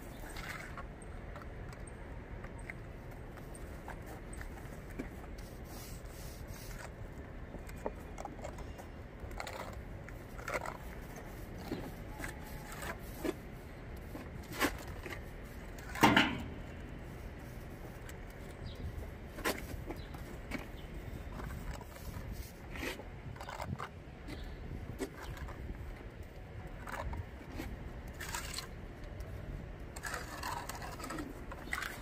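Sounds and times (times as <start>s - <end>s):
trowel scraping concrete: 9.3s - 18.1s, 29.9s - 32.0s.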